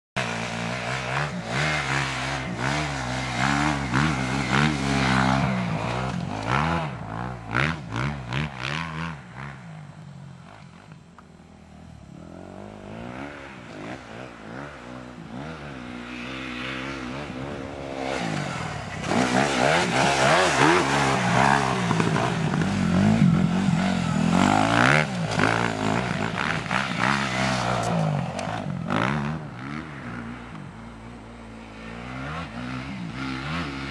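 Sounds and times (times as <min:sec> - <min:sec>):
motocross bike revving: 0:00.2 - 0:10.9, 0:12.0 - 0:33.9.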